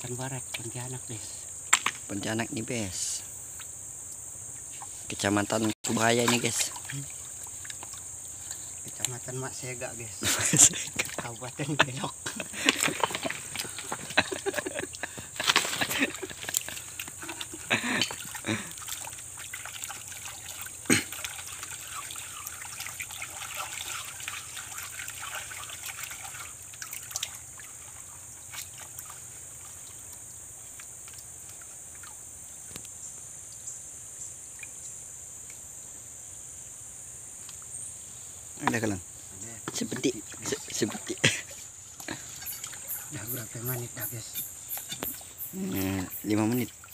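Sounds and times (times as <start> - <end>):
high insect buzz: 0.0 - 46.9
water splashing and sloshing: 4.7 - 32.3, 39.6 - 46.9.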